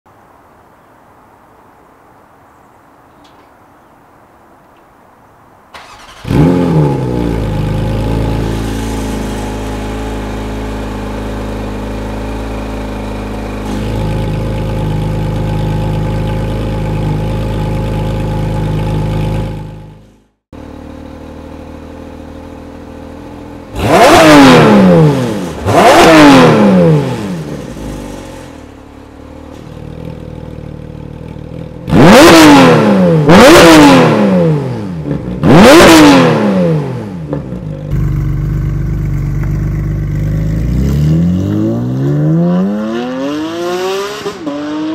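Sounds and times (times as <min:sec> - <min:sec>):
car engine starting and idling: 0:05.7 - 0:33.4, 0:36.4 - 0:42.8
car engine revving: 0:05.8 - 0:20.0, 0:23.6 - 0:28.9, 0:31.2 - 0:44.9.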